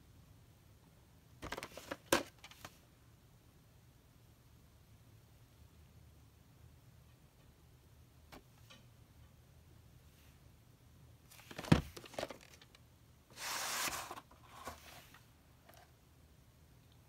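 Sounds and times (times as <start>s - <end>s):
plastic sliding against cardboard: 13.3s - 15.3s.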